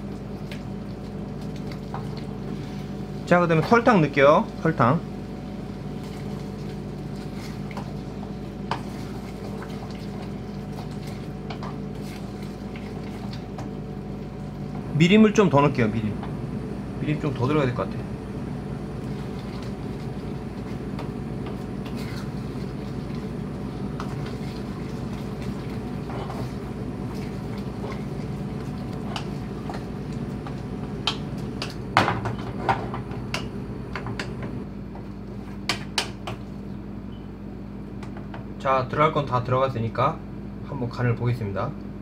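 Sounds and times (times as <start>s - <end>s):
steady low hum: 0.0s - 42.0s
spatula stirring in saucepan: 5.3s - 14.2s, 19.0s - 31.9s.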